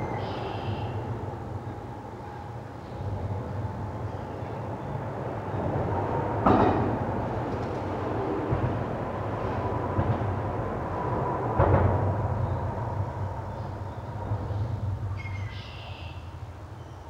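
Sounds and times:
steady low rumble: 0:01.0 - 0:15.6.

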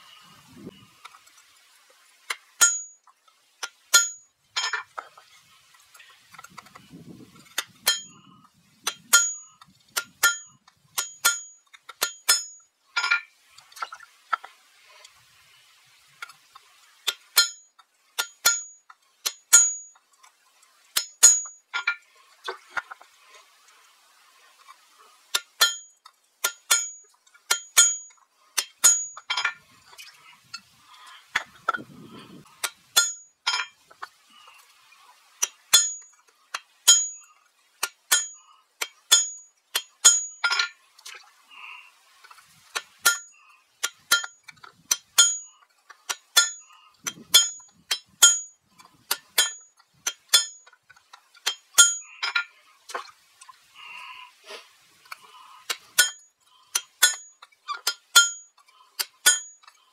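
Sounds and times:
hammer striking an anvil: 0:02.6 - 0:03.0, 0:03.9 - 0:04.8, 0:07.8 - 0:08.1, 0:08.9 - 0:13.2, 0:17.1 - 0:17.6, 0:18.2 - 0:19.9, 0:25.6 - 0:29.5, 0:33.0 - 0:33.7, 0:35.7 - 0:36.0, 0:36.9 - 0:37.2, 0:38.1 - 0:38.4, 0:39.1 - 0:40.7, 0:43.1 - 0:45.5, 0:46.4 - 0:46.6, 0:47.4 - 0:48.5, 0:49.4 - 0:50.6, 0:51.5 - 0:52.4, 0:56.0 - 0:56.2, 0:56.8 - 0:58.4, 0:59.2 - 0:59.6.

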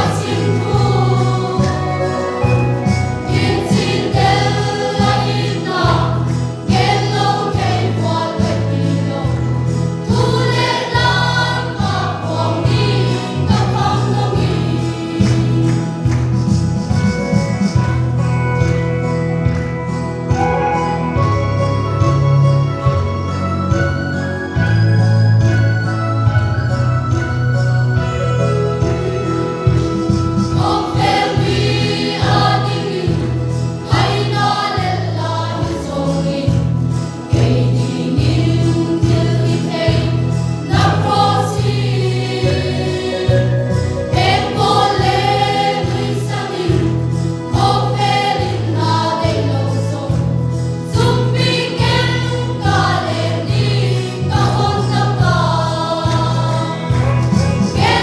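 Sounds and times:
mixed choir singing: 0:00.0 - 0:16.5, 0:30.5 - 0:58.0
instrumental accompaniment: 0:00.0 - 0:58.0.

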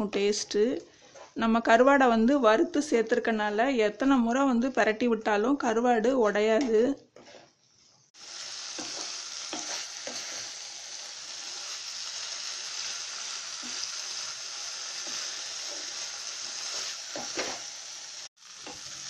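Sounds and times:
wooden spatula scraping a pan: 0:07.2 - 0:08.0, 0:08.8 - 0:10.6, 0:15.0 - 0:17.7
fish masala sizzling in a pan: 0:08.1 - 0:19.0.

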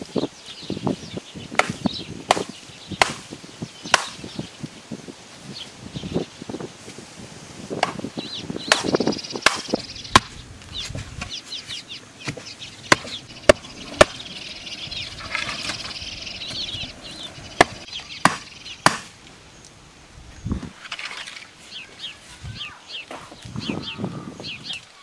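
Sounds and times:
stakes pounded into ground: 0:01.6 - 0:04.3, 0:08.7 - 0:11.4, 0:17.6 - 0:19.2.

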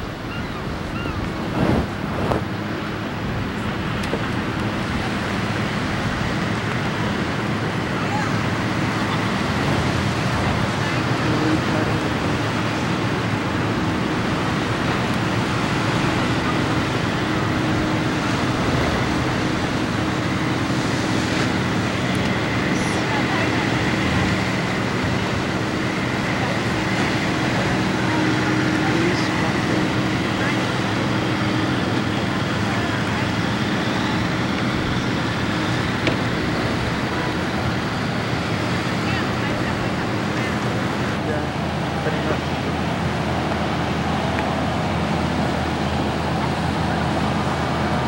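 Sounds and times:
wind on microphone: 0:00.0 - 0:07.8
surf rushing: 0:00.0 - 0:48.0
wind: 0:00.0 - 0:48.0.

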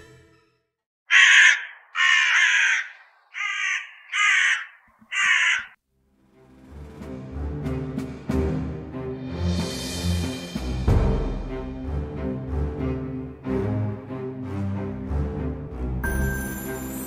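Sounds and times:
crow cawing: 0:01.1 - 0:05.8.

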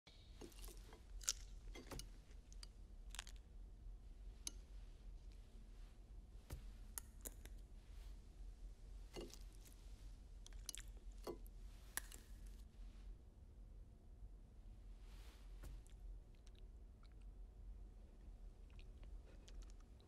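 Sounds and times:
faint low room hum: 0:00.1 - 0:20.0
soft chewing: 0:00.2 - 0:03.5, 0:09.1 - 0:12.7, 0:15.1 - 0:17.4, 0:18.0 - 0:20.0
cutlery and dishes clinking: 0:00.4 - 0:02.2, 0:09.2 - 0:09.5.

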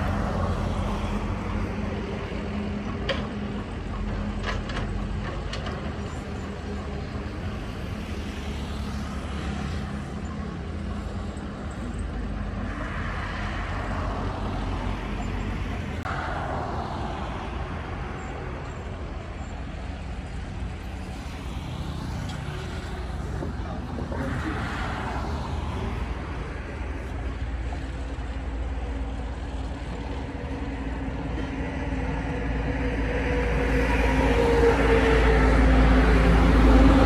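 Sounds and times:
diesel engines running under load: 0:00.0 - 0:37.0.

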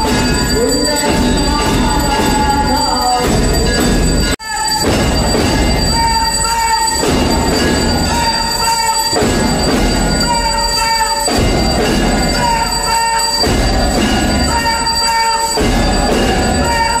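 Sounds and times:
temple bells clanging: 0:00.0 - 0:17.0.

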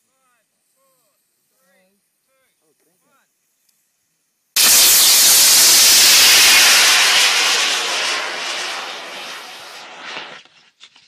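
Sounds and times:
rocket motor roaring: 0:04.6 - 0:10.4.

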